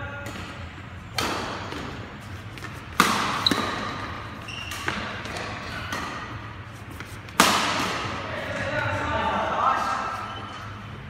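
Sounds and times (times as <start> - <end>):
court shoes squeaking: 0.0 - 9.1, 9.8 - 11.0
rackets striking shuttlecock: 1.1 - 2.0, 2.6 - 6.4, 7.0 - 8.2.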